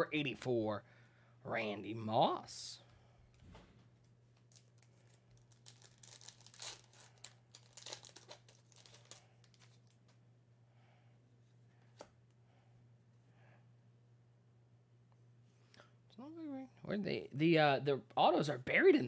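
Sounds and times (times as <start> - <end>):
low steady hum: 0.0 - 19.0
wrapper crinkling and tearing: 4.4 - 10.2.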